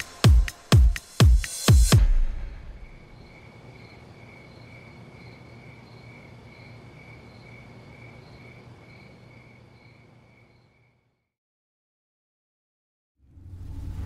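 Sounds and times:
crickets chirping: 0:02.5 - 0:11.3
low hum: 0:13.2 - 0:14.0.

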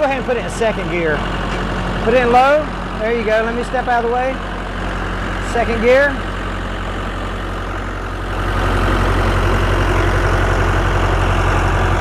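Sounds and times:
tractor diesel engine running: 0:00.0 - 0:12.0.

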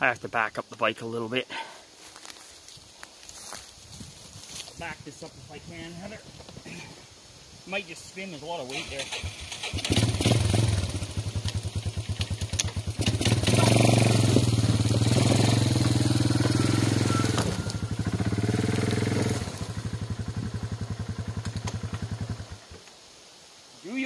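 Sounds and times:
atv engine revving under load: 0:08.7 - 0:22.6.

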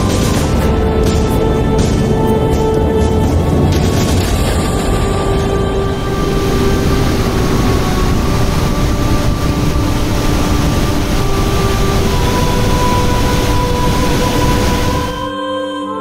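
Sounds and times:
waterfall rushing: 0:00.0 - 0:15.3
faint musical tones: 0:00.0 - 0:16.0.

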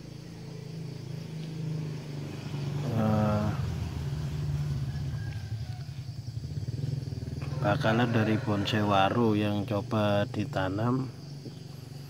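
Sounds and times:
vehicle engine humming: 0:00.0 - 0:12.0
man's voice: 0:07.6 - 0:11.1.

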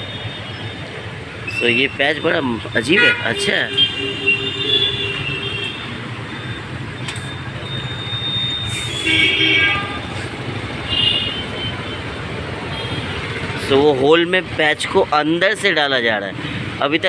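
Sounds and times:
road traffic noise: 0:00.0 - 0:17.0
vehicle horn tooting: 0:02.9 - 0:05.9, 0:07.8 - 0:10.2.

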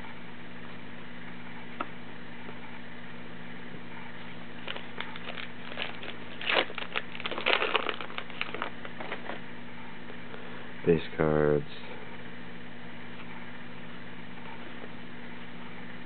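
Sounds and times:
steady low hum: 0:00.0 - 0:16.0
foil wrapper tearing and crinkling: 0:04.6 - 0:09.4.

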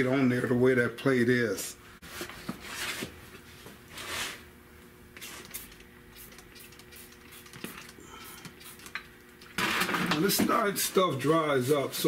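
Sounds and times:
spray bottle squirting: 0:05.2 - 0:09.0.

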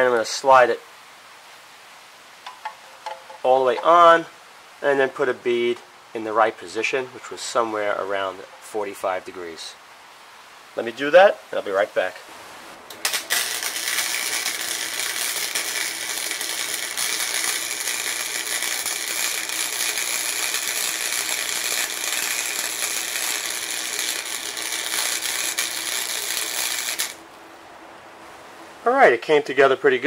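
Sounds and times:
faint steady hum: 0:00.0 - 0:30.0
welding arc crackling: 0:12.8 - 0:27.4.

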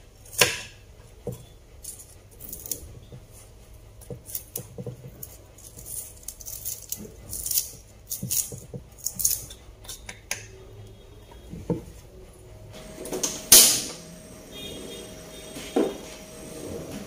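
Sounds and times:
knife chopping on wooden board: 0:00.3 - 0:01.4
gas burner lighting burst: 0:12.8 - 0:14.3.

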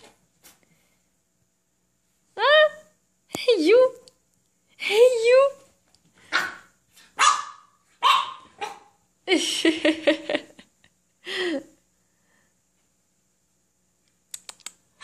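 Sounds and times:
puppy barking in short yaps: 0:06.3 - 0:08.9.

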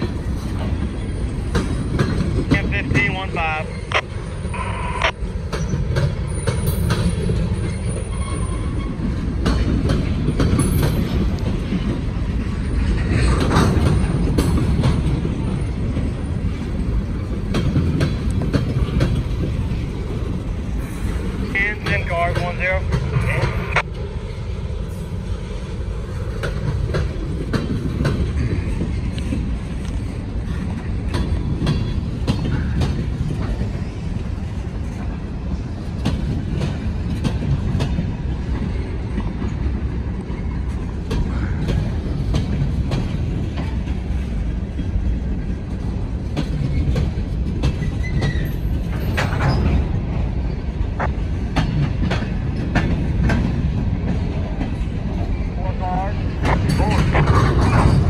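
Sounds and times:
wheels clicking over rail joints: 0:00.0 - 0:03.2, 0:05.4 - 0:24.1, 0:25.9 - 0:55.5
train rumble: 0:00.0 - 0:58.0
wheel squeal: 0:05.6 - 0:09.1, 0:47.7 - 0:49.8.

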